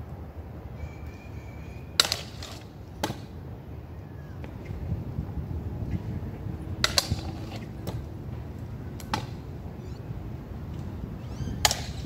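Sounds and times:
scooter wheels rolling on concrete: 0:02.0 - 0:03.4, 0:04.4 - 0:12.0.

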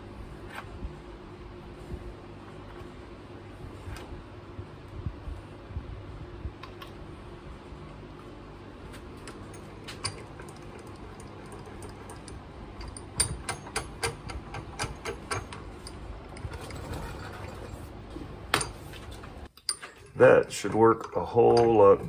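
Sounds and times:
vise handle clicking: 0:09.2 - 0:16.8
vise metallic clicks and clinks: 0:19.6 - 0:22.0.

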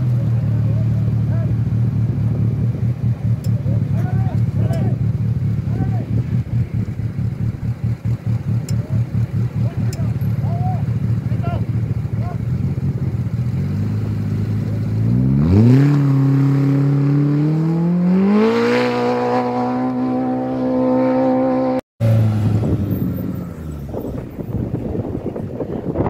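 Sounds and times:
race vehicle engine revving: 0:00.0 - 0:26.0
wind noise: 0:22.2 - 0:26.0.

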